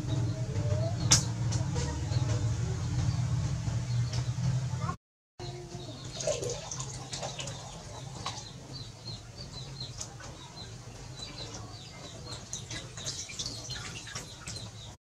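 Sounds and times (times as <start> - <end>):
water splashing in plastic tub: 6.0 - 15.0.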